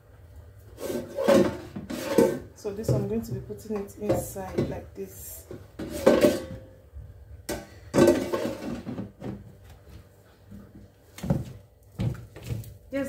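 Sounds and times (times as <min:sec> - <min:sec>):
air fryer basket clattering: 0:07.5 - 0:09.2.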